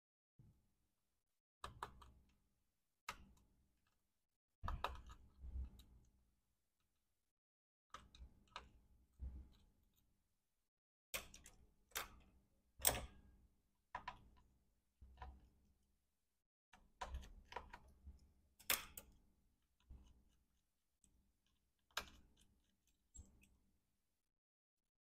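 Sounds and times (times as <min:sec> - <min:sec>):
small tools clicking and tapping: 0:21.4 - 0:23.6.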